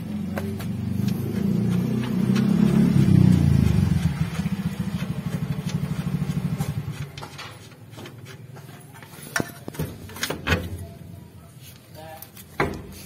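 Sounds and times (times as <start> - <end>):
vehicle engine running: 0.0 - 7.8.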